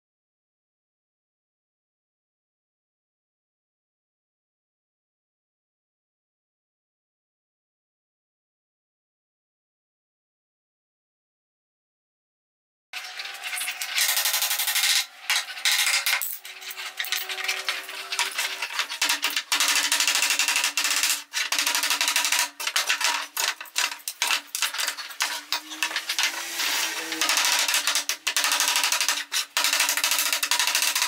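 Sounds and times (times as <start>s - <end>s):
hammer striking wood and nails: 14.0s - 26.4s, 27.2s - 31.0s.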